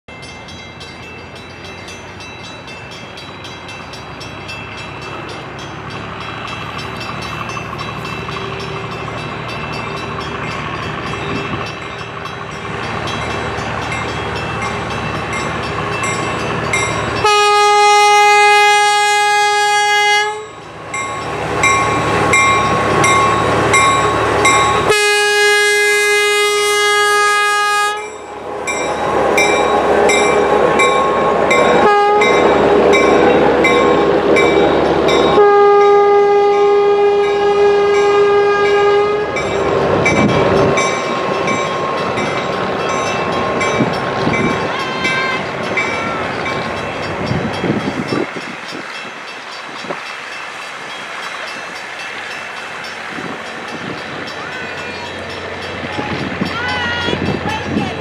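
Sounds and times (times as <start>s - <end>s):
diesel locomotive engine: 0.1s - 58.0s
locomotive horn blasts: 17.2s - 20.6s, 24.8s - 28.2s, 31.7s - 32.6s, 35.3s - 39.4s.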